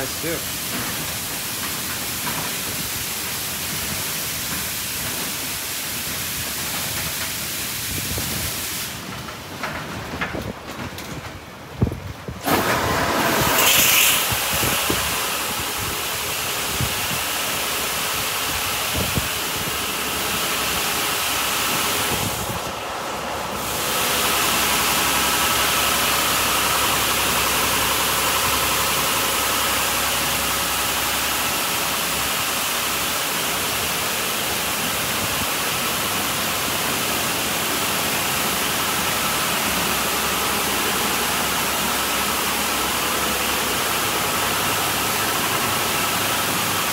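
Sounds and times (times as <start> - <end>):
car wash machine humming: 0.0 - 46.9.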